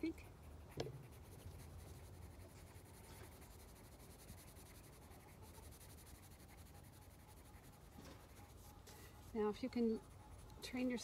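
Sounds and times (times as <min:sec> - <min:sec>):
pencil scratching on paper: 0:00.0 - 0:11.0.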